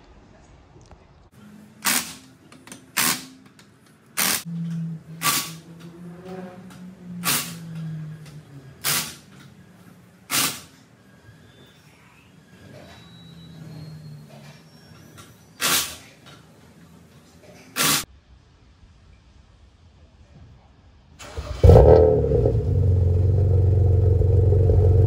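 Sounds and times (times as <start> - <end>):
short sharp bursts: 4.2 - 4.5, 10.3 - 10.8, 15.6 - 16.1, 17.8 - 18.0.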